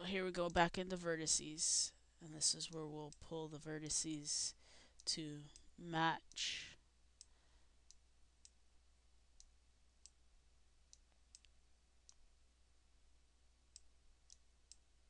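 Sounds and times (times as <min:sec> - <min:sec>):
low steady hum: 0:00.0 - 0:15.0
computer mouse clicks: 0:10.9 - 0:11.5.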